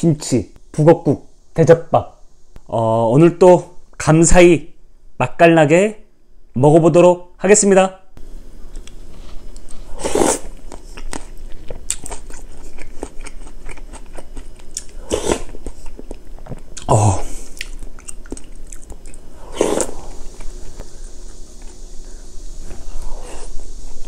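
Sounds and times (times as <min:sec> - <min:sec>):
man chewing and crunching food: 0:08.6 - 0:24.0.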